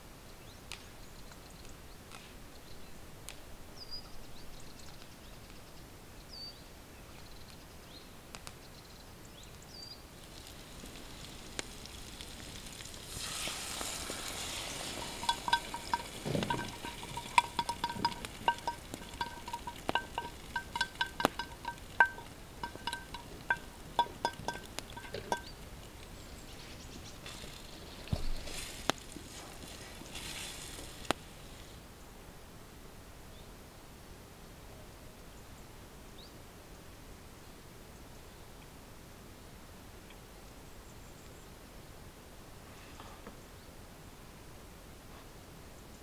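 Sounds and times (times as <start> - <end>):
food sizzling in a pan: 10.1 - 31.8
utensil clinking in a pan: 13.2 - 26.0.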